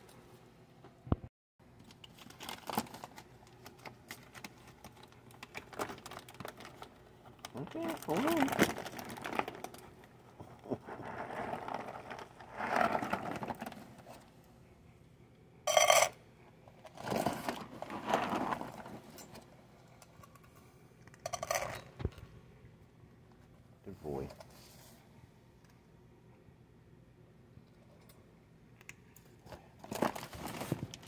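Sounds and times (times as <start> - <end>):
rustling of food bag: 2.1 - 7.0, 7.6 - 10.0, 29.8 - 31.0.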